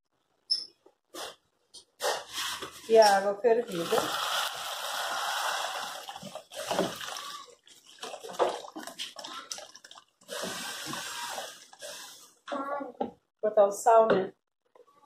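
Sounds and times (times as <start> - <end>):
water pouring into pot: 3.6 - 12.1.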